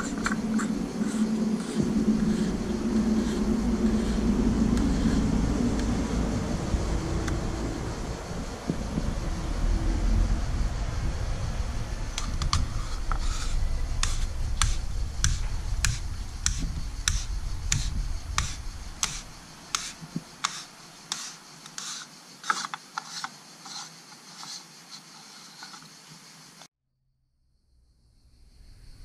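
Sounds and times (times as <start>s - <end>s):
wind rumble on microphone: 0.0s - 20.4s.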